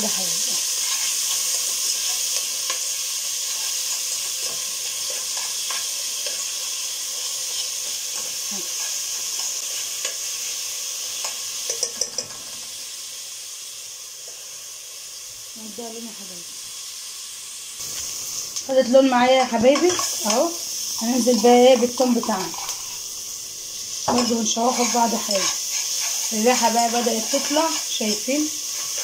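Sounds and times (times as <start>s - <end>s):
onion sizzling in pot: 0.0s - 29.0s
metal spoon scraping pot: 21.2s - 23.0s, 24.1s - 27.8s.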